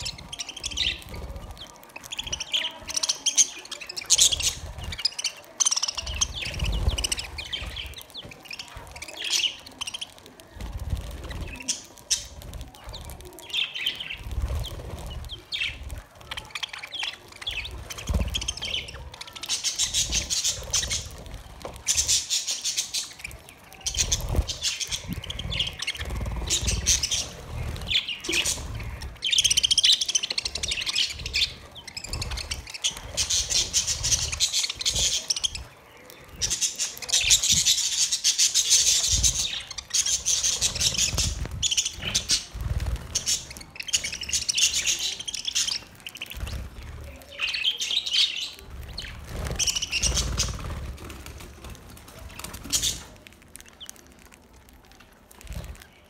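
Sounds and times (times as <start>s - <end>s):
wings flapping: 0.0s - 56.0s
budgerigars chattering: 23.9s - 46.5s.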